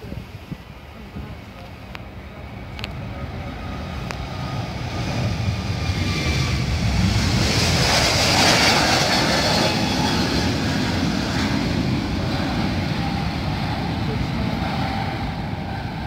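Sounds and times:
jet engines at take-off: 0:00.0 - 0:16.0.

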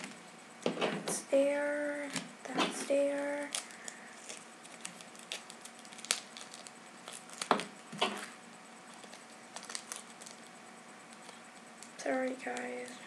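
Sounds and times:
plastic and paper rustling: 0:02.6 - 0:08.3, 0:08.9 - 0:10.5.

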